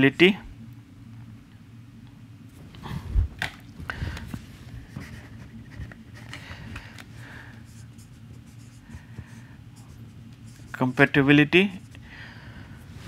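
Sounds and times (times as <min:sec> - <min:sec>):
marker pen writing on whiteboard: 0:07.6 - 0:12.0.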